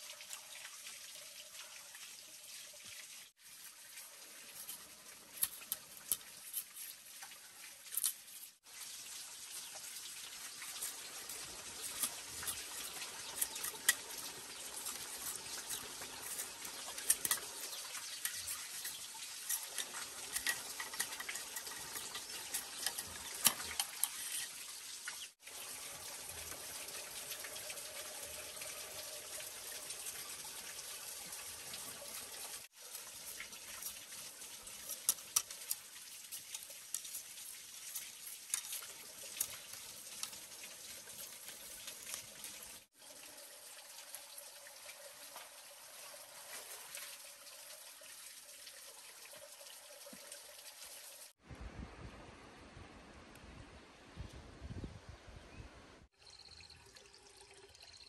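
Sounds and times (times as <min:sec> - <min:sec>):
cleaver rasping on bamboo: 0:10.6 - 0:24.6, 0:32.8 - 0:42.3.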